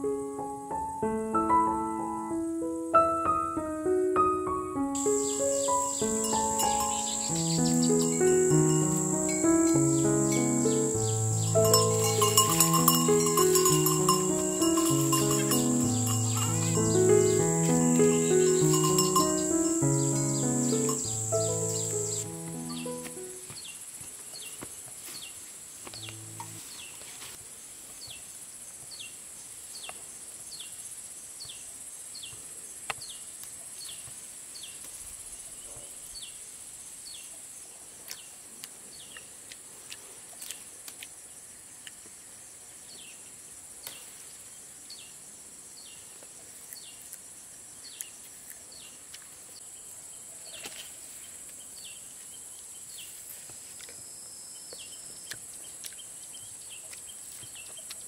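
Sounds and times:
high insect drone: 0.0 - 24.1, 25.8 - 26.8.

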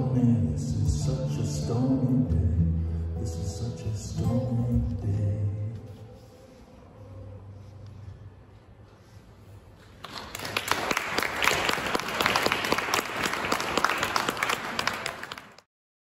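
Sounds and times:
audience applause: 10.0 - 15.7.

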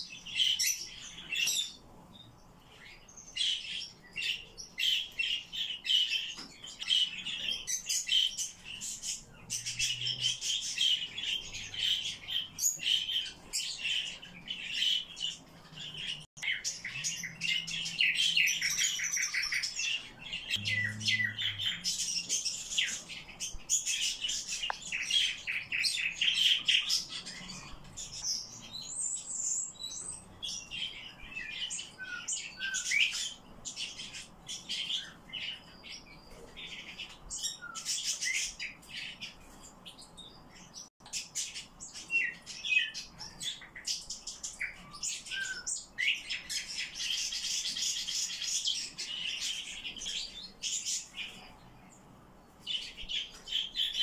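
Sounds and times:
nightingales singing: 0.0 - 39.4.

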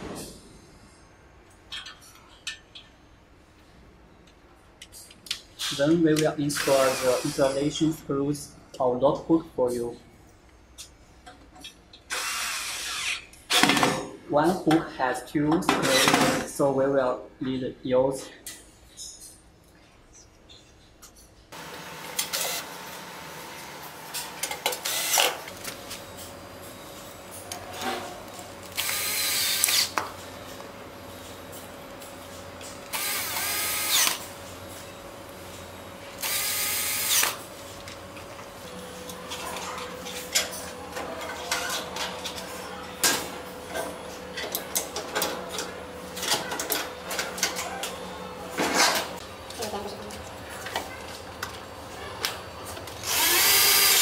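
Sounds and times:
cordless drill driving screws: 6.6 - 7.5, 12.1 - 13.6, 24.8 - 25.4, 28.8 - 30.0, 32.9 - 34.2, 36.2 - 37.4, 53.0 - 54.0.

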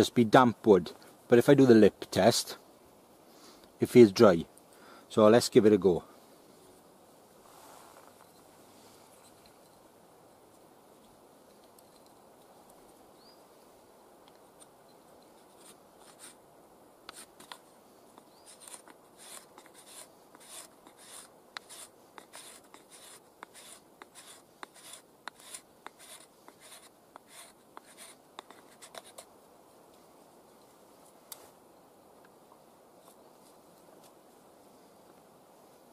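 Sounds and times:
knife scraping wood: 15.2 - 16.4, 17.1 - 17.6, 18.2 - 29.3.

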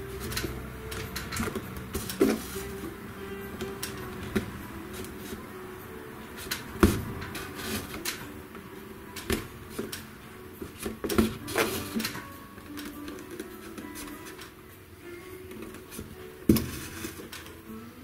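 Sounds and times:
knocks and clatter of upholstery work: 0.2 - 3.0, 6.4 - 8.3, 9.1 - 14.6, 15.5 - 17.6.

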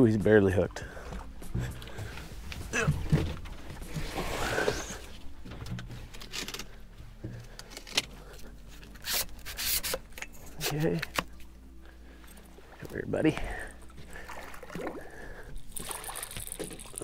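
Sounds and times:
landing net scraping and knocking: 1.6 - 6.7.

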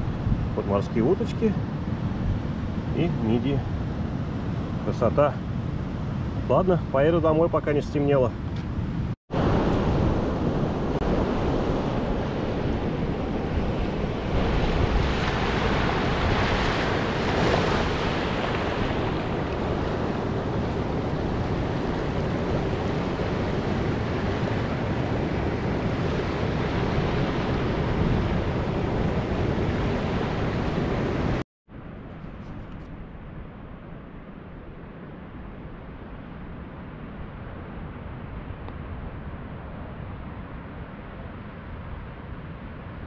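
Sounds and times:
waves washing over rocky beach: 11.2 - 31.3.

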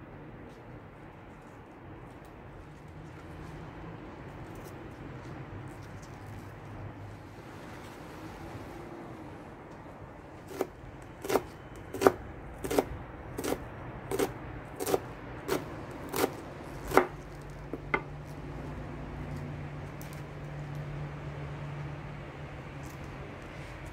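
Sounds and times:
knife chopping on wooden board: 10.5 - 18.1.

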